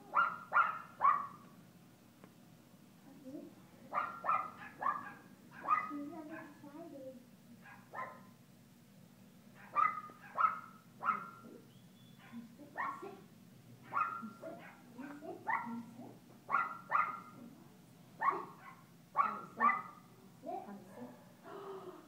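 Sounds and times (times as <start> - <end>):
small dogs barking: 0.0 - 1.5, 3.9 - 6.6, 7.6 - 8.4, 9.5 - 11.6, 12.2 - 13.1, 13.8 - 17.4, 18.2 - 20.1, 20.8 - 21.4.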